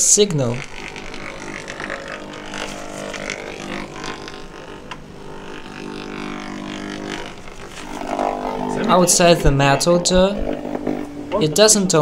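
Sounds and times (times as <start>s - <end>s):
steady electrical buzz: 0.0s - 12.0s.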